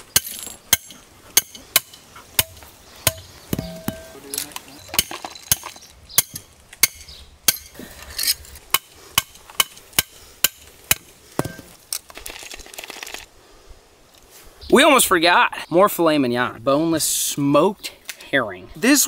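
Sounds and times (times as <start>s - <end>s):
hammer striking metal stake: 0.1s - 11.8s.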